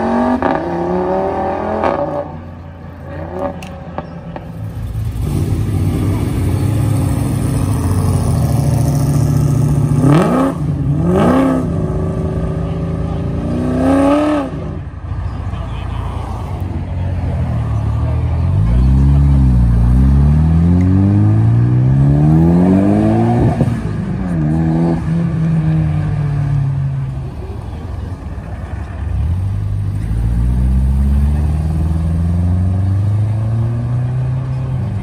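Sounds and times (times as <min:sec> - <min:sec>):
car engine accelerating: 0:17.0 - 0:35.0.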